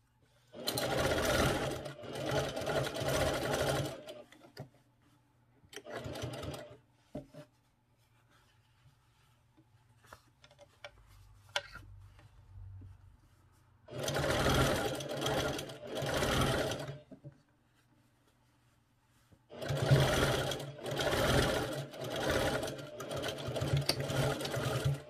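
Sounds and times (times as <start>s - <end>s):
sewing machine stitching: 0.5s - 4.4s, 5.8s - 6.8s, 13.9s - 17.1s, 19.5s - 25.0s.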